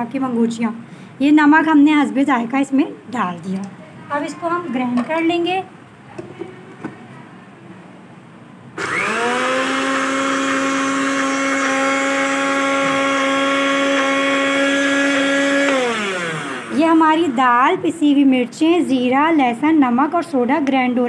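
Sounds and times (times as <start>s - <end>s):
blender motor grinding: 8.8s - 17.6s.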